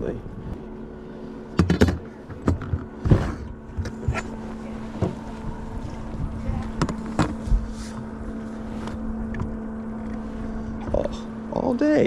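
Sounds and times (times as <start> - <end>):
electric motor humming: 0.0 - 12.0
knocks and scuffs on boat: 1.5 - 9.6.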